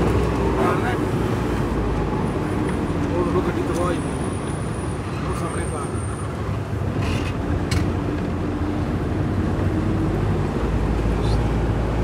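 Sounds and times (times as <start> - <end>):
vehicle engine and road noise: 0.0 - 12.0.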